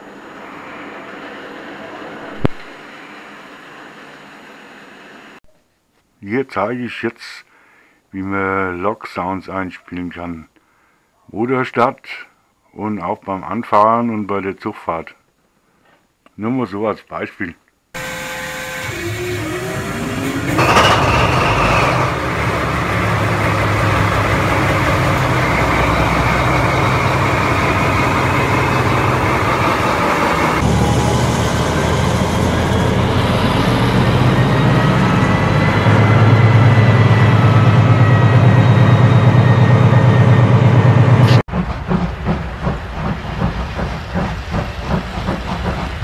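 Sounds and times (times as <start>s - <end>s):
diesel locomotive engine through speakers: 0.0s - 5.4s, 18.0s - 46.0s.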